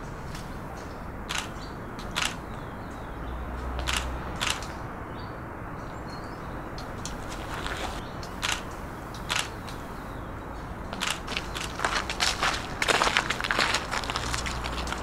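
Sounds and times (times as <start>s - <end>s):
steady background noise: 0.0s - 15.0s
camera shutter clicking: 2.2s - 2.4s, 3.9s - 4.7s, 8.4s - 9.6s.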